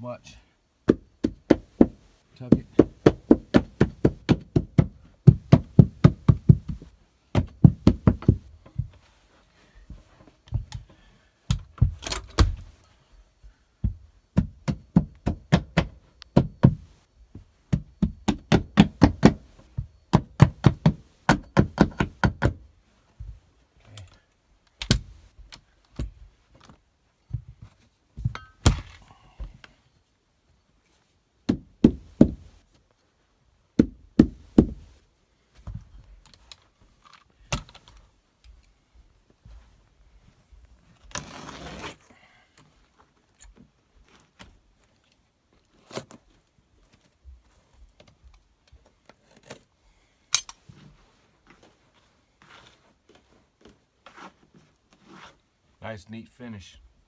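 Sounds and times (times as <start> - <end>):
hammer tapping metal tool: 28.3 - 28.6.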